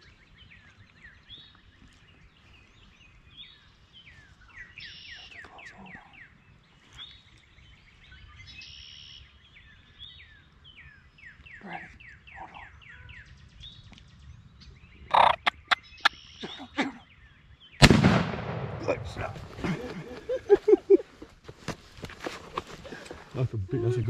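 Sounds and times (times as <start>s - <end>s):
small birds chirping: 0.0s - 17.9s
turkey gobble: 15.1s - 16.2s.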